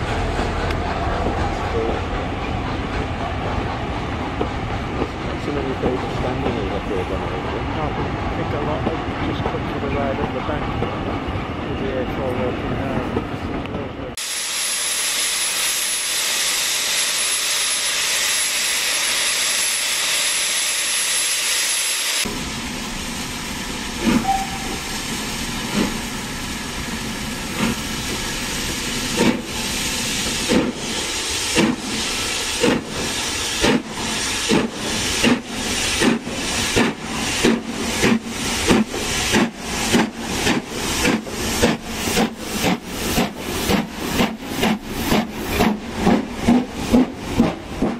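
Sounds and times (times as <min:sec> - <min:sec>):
steam locomotive exhaust beats: 0:00.0 - 0:07.6, 0:22.2 - 0:47.9
steam hissing: 0:14.2 - 0:47.9.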